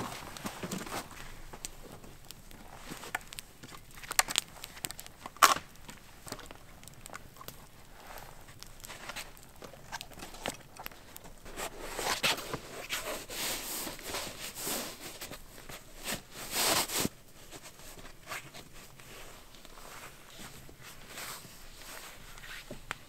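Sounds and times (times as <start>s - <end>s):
rustling and scuffing: 0.0s - 3.4s.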